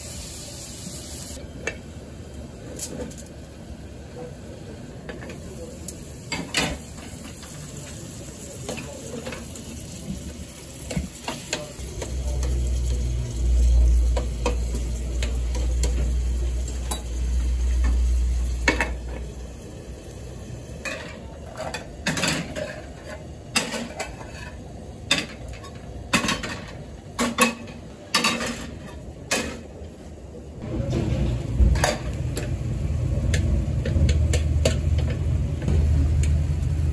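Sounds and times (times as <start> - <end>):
tomatoes sizzling in a pan: 0.0 - 1.5, 5.3 - 26.7
pans and utensils clinking: 6.3 - 8.0, 10.7 - 13.0, 14.0 - 19.4, 20.8 - 29.7, 30.8 - 32.5.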